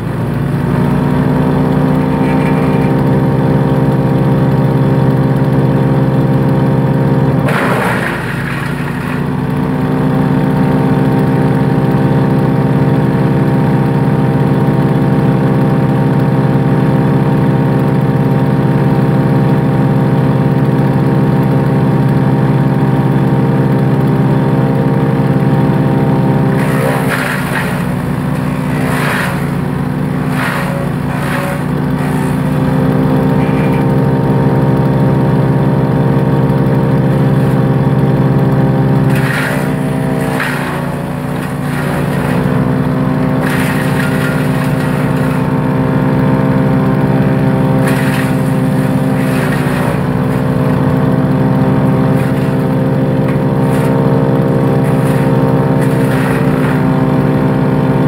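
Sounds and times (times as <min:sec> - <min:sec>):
wood chipper engine running: 0:00.0 - 0:58.0
bamboo cracking in chipper: 0:26.5 - 0:34.0, 0:39.1 - 0:42.6, 0:47.8 - 0:48.6, 0:49.2 - 0:50.8, 0:52.1 - 0:52.6, 0:54.6 - 0:56.9.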